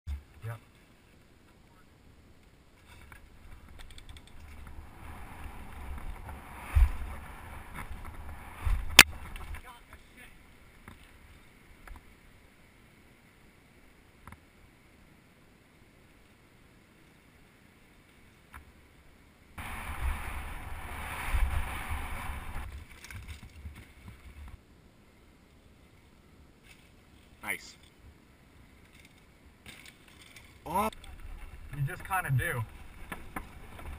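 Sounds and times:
bike tyre rumble: 2.8 - 9.7, 19.6 - 24.6, 28.6 - 33.9
wind on microphone: 3.4 - 9.5, 19.6 - 22.9
deep rumbling thuds of bike: 5.4 - 9.5.

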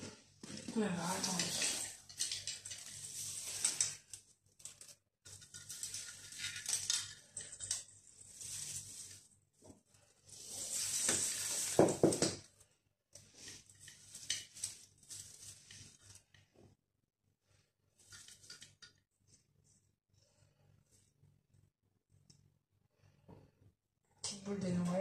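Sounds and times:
artificial tree branches rustling: 0.4 - 12.2, 13.3 - 16.4.

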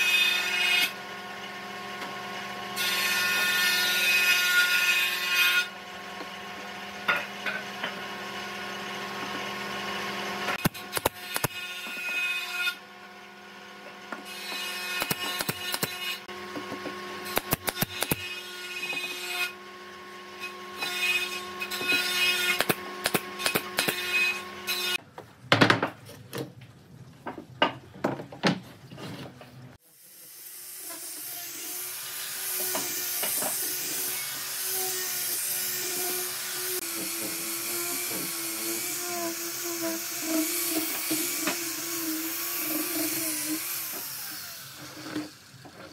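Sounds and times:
electric disc sander sanding wood: 30.7 - 45.9.

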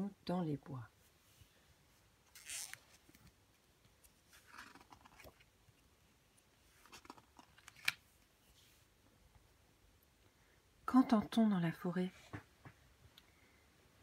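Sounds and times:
book pages rustling: 2.3 - 5.5, 6.6 - 8.9.

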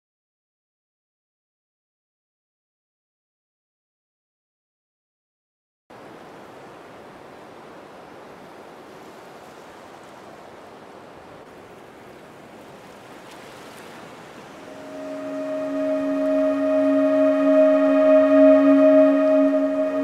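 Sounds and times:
ocean surf: 5.9 - 20.0
held musical tones: 14.7 - 20.0.

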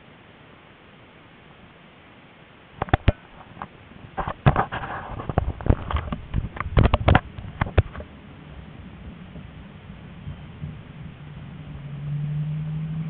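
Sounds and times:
knocks and clicks in tram: 2.8 - 8.1
quiet running hum: 2.8 - 13.0.

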